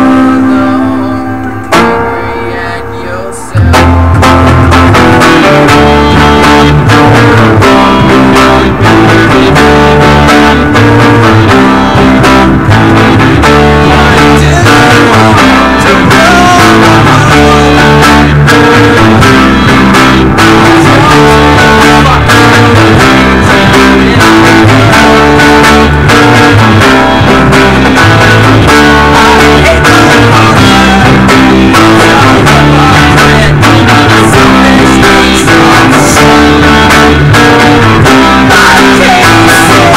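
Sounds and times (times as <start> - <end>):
acoustic guitar playing: 0.0 - 39.9
electric guitars playing: 0.0 - 39.9.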